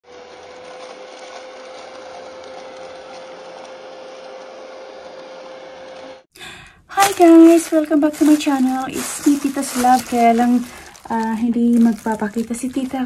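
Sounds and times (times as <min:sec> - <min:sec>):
mini vacuum cleaner whirring: 0:00.0 - 0:06.3.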